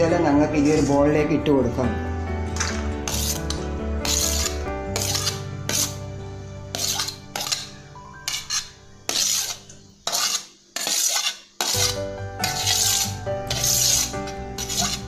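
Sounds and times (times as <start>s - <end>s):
background music: 0.0s - 10.0s, 11.7s - 15.0s
metal spoon scraping steel plate: 2.6s - 6.0s, 6.7s - 15.0s.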